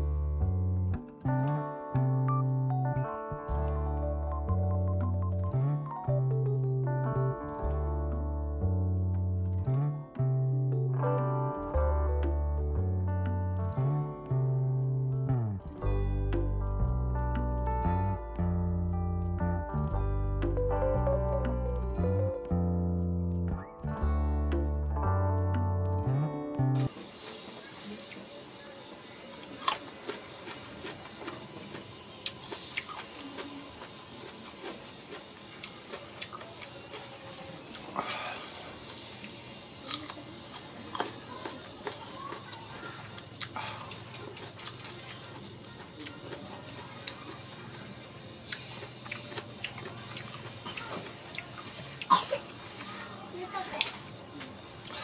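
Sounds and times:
high-pitched insect trill: 26.8 - 55.0
chewing: 29.3 - 53.1
wet chewing and lip-smacking: 43.1 - 52.1.

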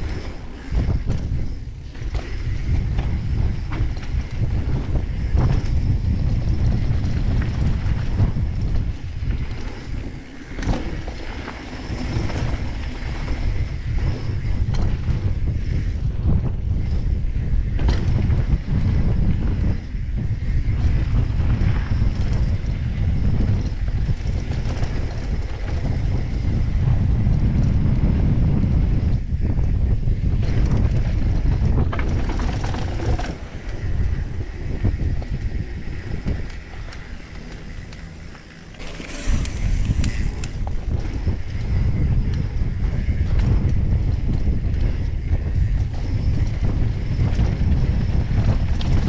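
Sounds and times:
bike tyres rolling on dirt: 0.0 - 49.0
wind buffeting microphone: 0.0 - 49.0
tyres rumbling on dirt: 30.5 - 41.8.

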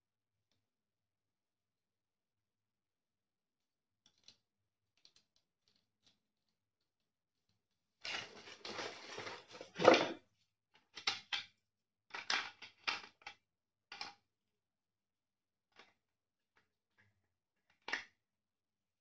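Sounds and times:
plastic parts clattering: 8.1 - 10.2.

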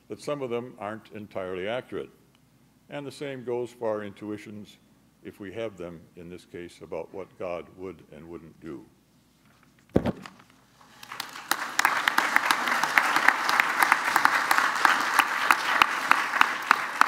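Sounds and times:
thump: 9.9 - 10.4
audience applauding: 10.8 - 17.0.

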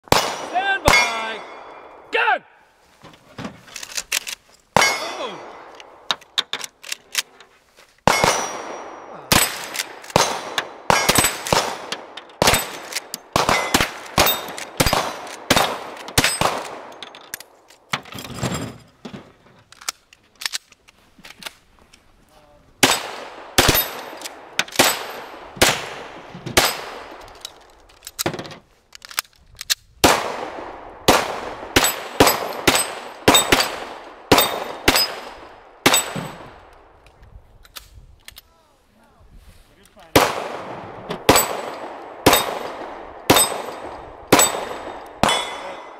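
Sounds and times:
rapid rifle and pistol gunfire: 0.1 - 1.7, 8.1 - 17.0, 22.8 - 27.2, 30.0 - 36.4, 40.1 - 45.9
steel targets ringing: 0.8 - 1.8, 4.8 - 5.6, 8.1 - 9.6, 44.4 - 45.9.

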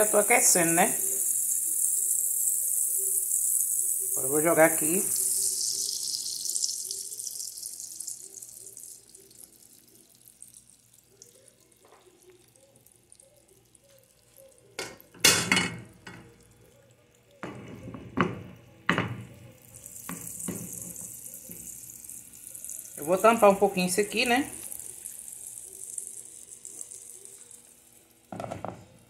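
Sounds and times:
egg sizzling in oil: 0.0 - 29.0.

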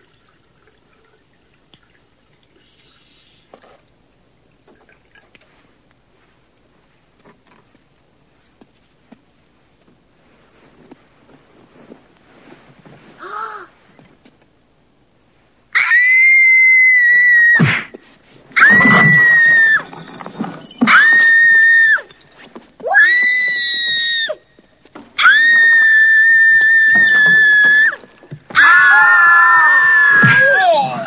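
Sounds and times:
people screaming: 18.6 - 19.9, 25.2 - 28.0, 28.6 - 31.0.

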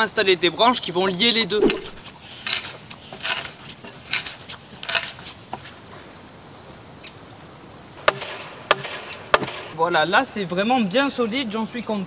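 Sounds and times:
mallet knocking wooden peg: 1.6 - 2.0
hand auger rasping into wood: 1.7 - 5.3.

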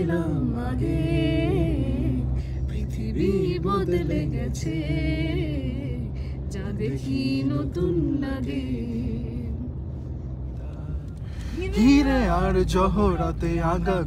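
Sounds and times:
man and women singing: 0.0 - 6.0
car engine and road rumble: 0.0 - 14.0.

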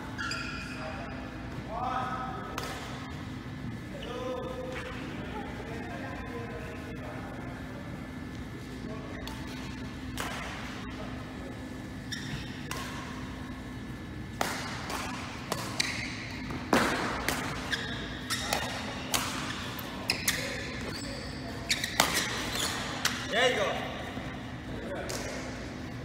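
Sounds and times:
shoe squeaks: 0.0 - 1.2, 12.0 - 12.7, 15.7 - 16.5, 17.6 - 23.2
racket hitting shuttlecock: 2.6 - 3.0, 10.1 - 10.7, 12.4 - 13.3, 14.3 - 20.6, 21.7 - 23.2.

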